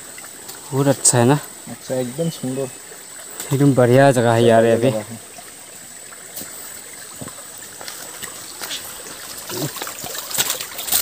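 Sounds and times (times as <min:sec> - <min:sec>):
stream trickling over rocks: 0:00.0 - 0:11.0
footsteps: 0:06.3 - 0:11.0
rustling bamboo leaves: 0:07.7 - 0:11.0.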